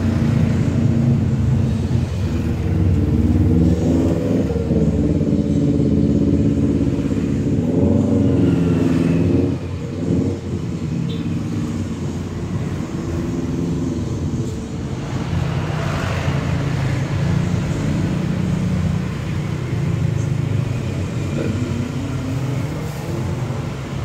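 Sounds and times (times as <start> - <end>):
vehicle passing: 0.0 - 11.0
vehicle engine rumbling: 0.0 - 24.0.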